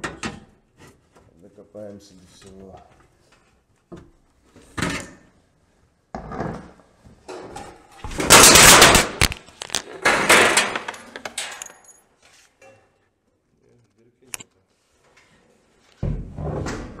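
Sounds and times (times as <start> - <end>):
metal sheet clanks: 8.1 - 9.4, 10.0 - 11.7
thin metal sheets rattling: 8.2 - 9.4, 10.0 - 11.6.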